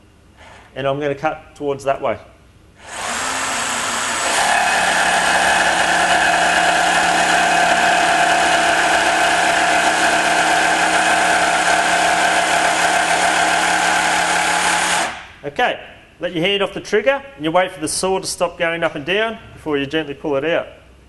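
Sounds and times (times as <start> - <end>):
jigsaw cutting through plywood: 2.8 - 15.2.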